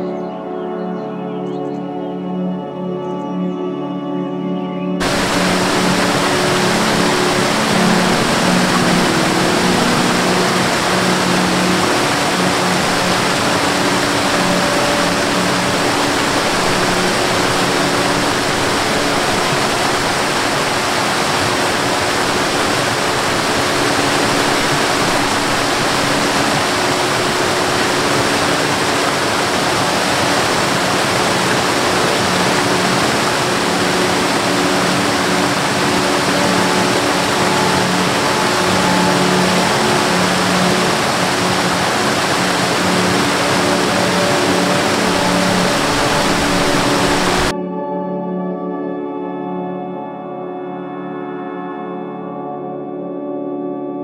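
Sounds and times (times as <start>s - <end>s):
water rushing loudly: 5.0s - 47.5s.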